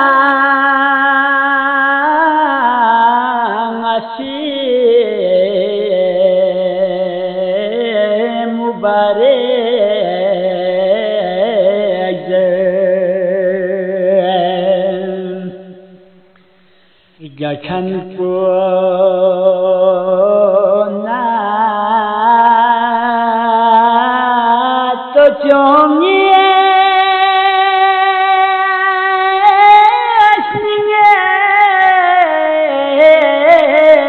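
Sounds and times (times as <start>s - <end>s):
person singing devotional song: 0.0s - 34.0s.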